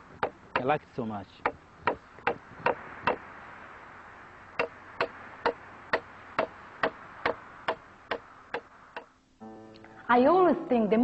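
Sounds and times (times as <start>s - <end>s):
mallet striking chisel into wood: 1.4s - 3.2s, 4.6s - 9.1s.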